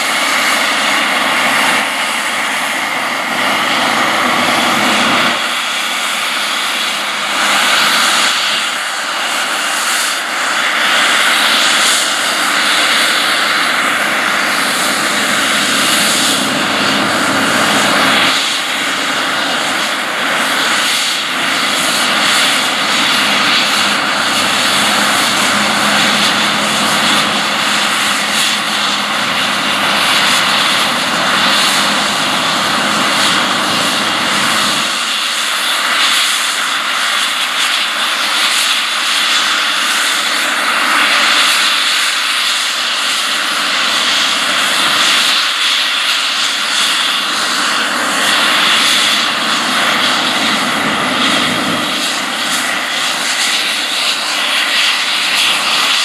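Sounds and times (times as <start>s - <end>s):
combine harvester running: 0.0s - 56.0s.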